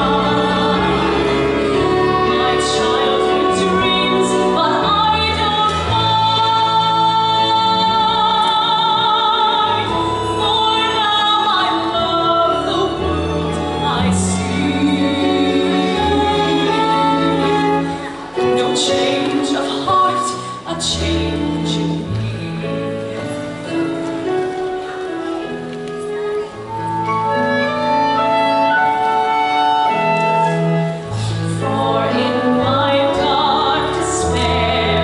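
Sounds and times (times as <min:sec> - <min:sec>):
instrumental accompaniment: 0:00.0 - 0:35.0
woman singing a ballad: 0:01.9 - 0:22.7, 0:31.4 - 0:35.0.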